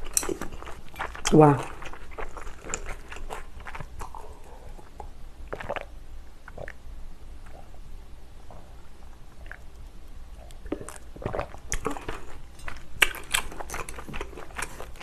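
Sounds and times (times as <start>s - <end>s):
chewing with mouth clicks: 0.0s - 6.8s, 10.4s - 15.0s
drinking and swallowing: 4.0s - 6.8s, 9.4s - 9.7s, 10.4s - 12.2s.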